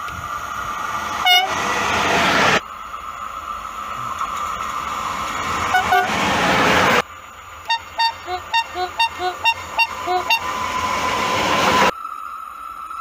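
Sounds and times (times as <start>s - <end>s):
rush of passing train: 0.0s - 13.0s
train horn blasts: 1.2s - 1.7s, 5.6s - 7.0s, 7.6s - 10.9s.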